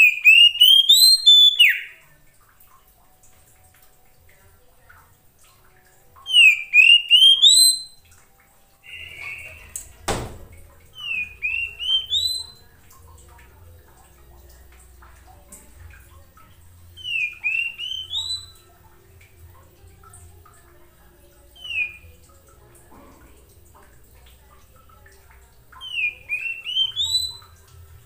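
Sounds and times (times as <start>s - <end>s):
bird whistling calls: 0.0s - 2.0s, 6.3s - 8.0s, 8.8s - 9.9s, 10.9s - 12.6s, 17.0s - 18.6s, 21.6s - 22.1s, 25.8s - 27.6s.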